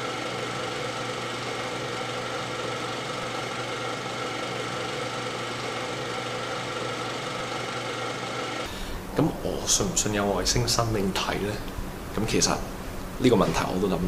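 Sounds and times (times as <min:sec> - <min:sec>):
small motor whirring: 0:00.0 - 0:08.7.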